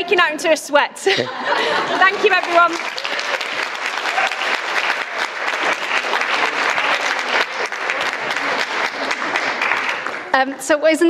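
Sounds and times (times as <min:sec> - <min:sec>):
audience applauding: 0:01.6 - 0:10.4.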